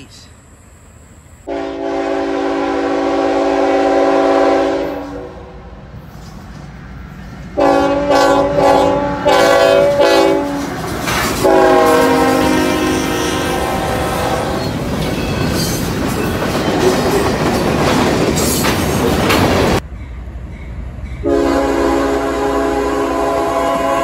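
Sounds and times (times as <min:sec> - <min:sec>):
locomotive air horn blasts: 0:01.5 - 0:05.6, 0:07.6 - 0:10.7, 0:11.4 - 0:14.6, 0:21.2 - 0:24.0
train wheels clicking on rail joints: 0:05.9 - 0:07.6, 0:09.8 - 0:12.4, 0:14.6 - 0:21.3.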